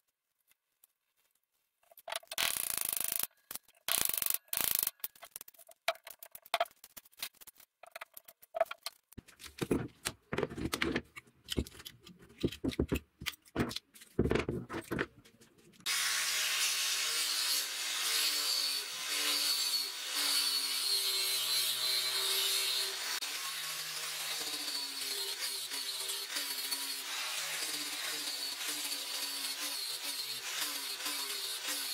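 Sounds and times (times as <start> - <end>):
angle grinder sanding wood: 15.9 - 31.9.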